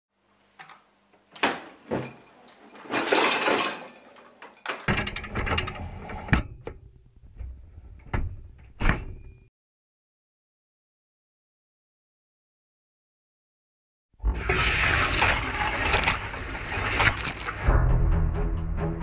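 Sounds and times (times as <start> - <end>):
plates and cutlery clinking: 1.9 - 6.3
wire rack rolling on runners: 2.1 - 6.3.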